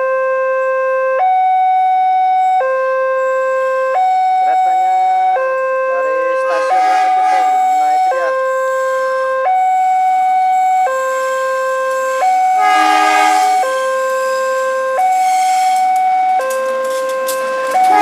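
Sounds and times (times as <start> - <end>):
level crossing two-tone alarm: 0.0 - 18.0
short horn blast: 6.4 - 9.4, 11.1 - 16.0, 16.6 - 18.0.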